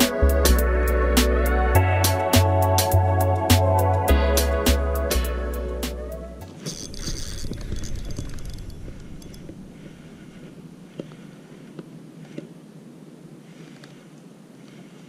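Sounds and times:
fishing reel whirring: 0:06.5 - 0:10.2
light reel clicks: 0:06.6 - 0:11.1.

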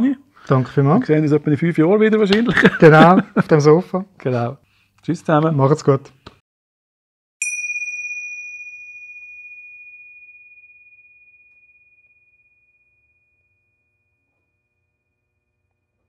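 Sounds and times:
bell-like chime ringing: 0:07.4 - 0:15.7.

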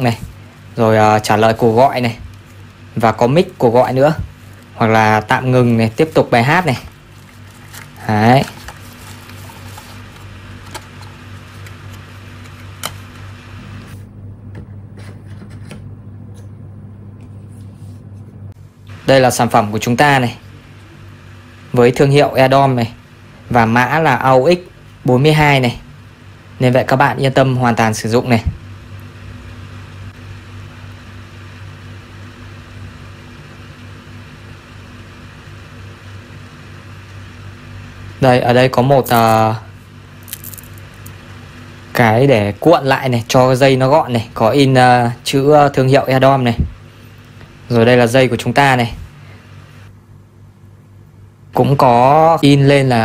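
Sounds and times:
low hum: 0:00.0 - 0:25.2
low electrical hum: 0:00.0 - 0:53.0.

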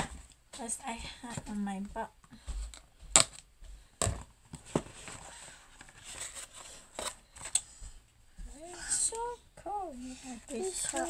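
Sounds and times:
packaging rustling: 0:04.0 - 0:07.6, 0:10.3 - 0:11.0.

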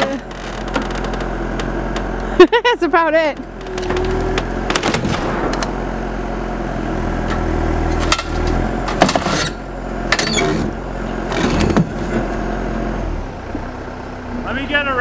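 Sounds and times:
knocks and creaks against metal: 0:00.0 - 0:02.3, 0:03.0 - 0:05.9
heavy equipment engine running: 0:00.0 - 0:15.0.

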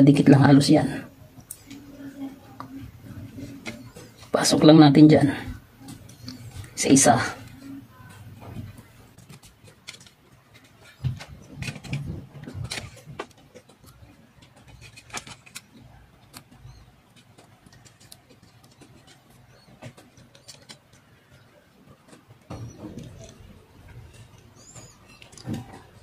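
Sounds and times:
small clicks and taps: 0:07.4 - 0:26.0.

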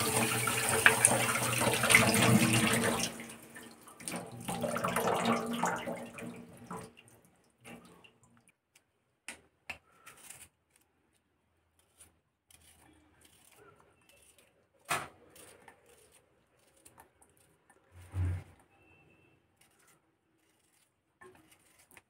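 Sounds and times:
knife cutting tomatoes: 0:09.6 - 0:18.7, 0:19.6 - 0:22.0.

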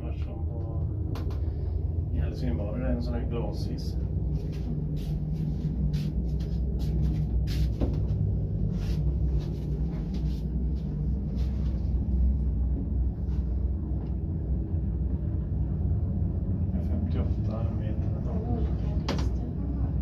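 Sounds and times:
passenger lift rumbling: 0:00.0 - 0:20.0.

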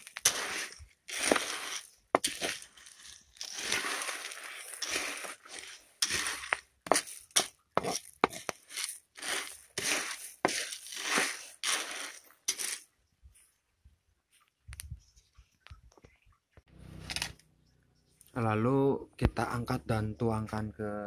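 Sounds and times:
coffee beans rattling in pan: 0:00.0 - 0:12.8
wooden spatula stirring: 0:00.0 - 0:12.9.

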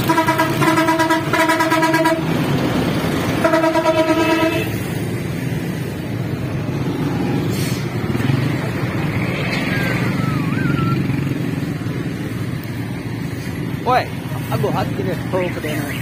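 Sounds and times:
vehicle horn honking: 0:00.0 - 0:02.3, 0:03.4 - 0:04.8
truck engines rumbling: 0:00.0 - 0:16.0.

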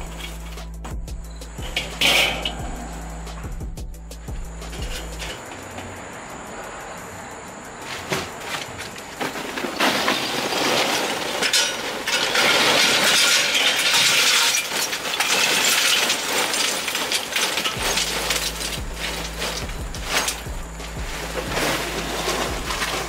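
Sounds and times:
steady low hum: 0:00.0 - 0:07.8, 0:17.7 - 0:23.0
charcoal clinking into metal chimney: 0:01.6 - 0:02.9, 0:04.6 - 0:06.0, 0:07.8 - 0:23.0.

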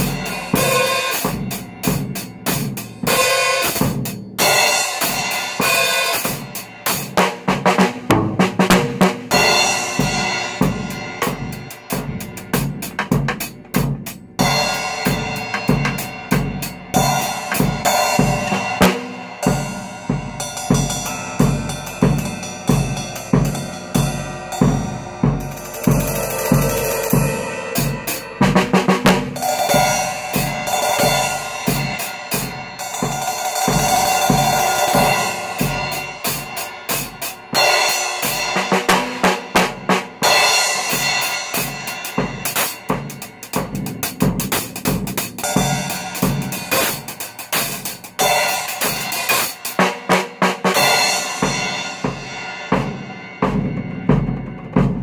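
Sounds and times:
drum kit playing: 0:00.0 - 0:55.0
cymbal ringing: 0:14.4 - 0:38.7.

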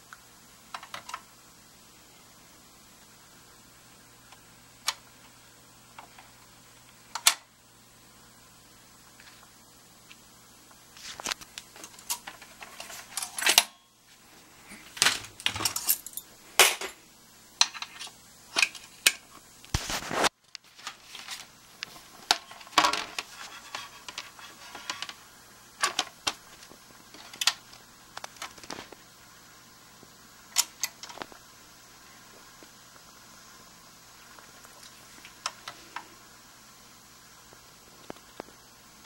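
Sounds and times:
faint steady hum: 0:00.0 - 0:39.0
clicks and rattles of record changer: 0:00.7 - 0:01.3, 0:07.1 - 0:07.5, 0:11.0 - 0:13.8, 0:14.9 - 0:15.9, 0:25.8 - 0:29.0, 0:30.5 - 0:31.4.

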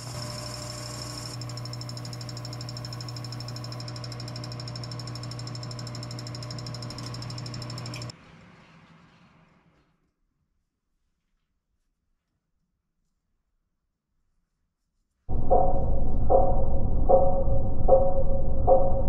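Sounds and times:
cutting tool high-pitched rattle: 0:00.0 - 0:08.1
lathe motor hum: 0:00.0 - 0:08.1.

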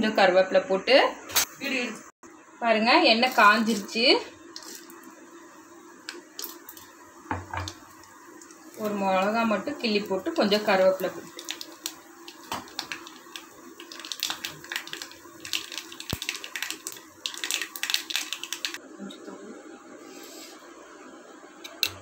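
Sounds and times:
spices crackling in hot oil: 0:02.8 - 0:18.8.

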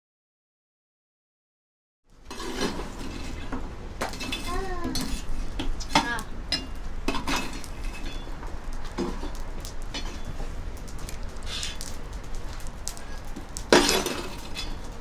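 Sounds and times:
meat sizzling on grill: 0:02.2 - 0:15.0
loud clatter: 0:08.9 - 0:15.0.

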